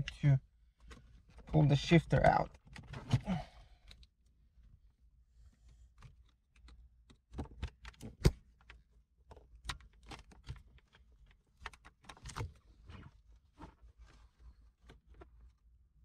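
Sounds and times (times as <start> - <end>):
clicks and knocks on gear shifter: 6.0 - 13.7.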